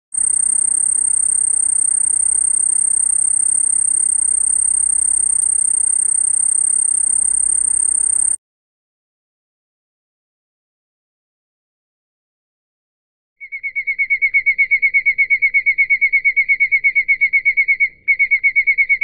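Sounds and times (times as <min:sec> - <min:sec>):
cricket trilling: 0:00.2 - 0:08.4.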